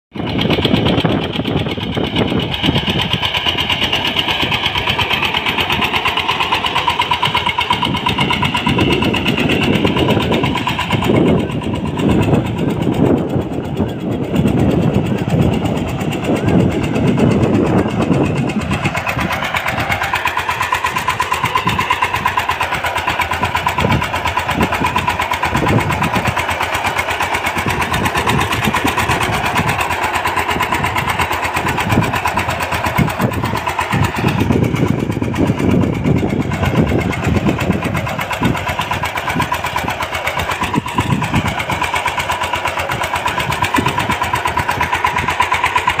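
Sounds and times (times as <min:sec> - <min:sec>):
diesel engine running under load: 0:00.1 - 0:46.0.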